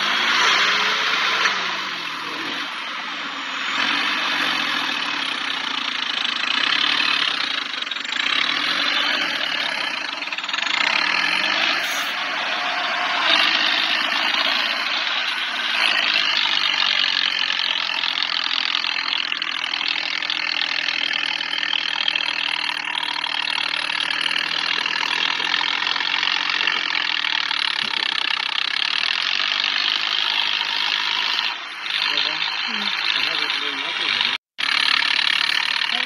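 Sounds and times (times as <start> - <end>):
diesel tractor engine under load: 0.0 - 36.0.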